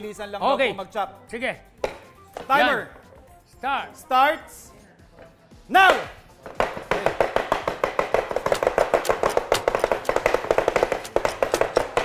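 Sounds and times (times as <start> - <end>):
knives chopping on wooden boards: 6.4 - 12.0.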